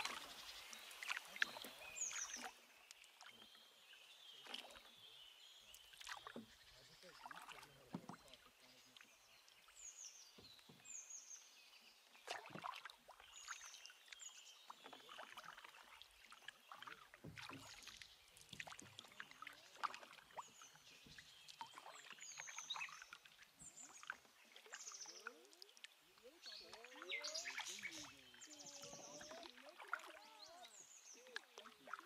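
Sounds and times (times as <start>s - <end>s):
paddle splashing water: 0.0s - 32.0s.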